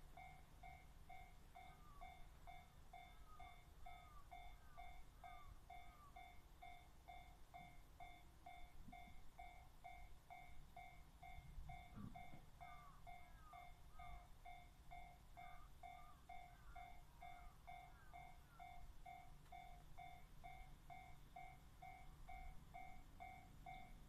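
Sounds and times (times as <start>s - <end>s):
level crossing warning bell: 0.0s - 24.0s.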